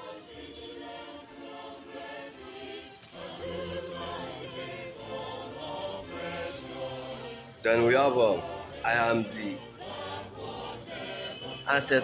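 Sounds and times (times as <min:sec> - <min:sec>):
choir singing sustained chords: 0:00.0 - 0:12.0.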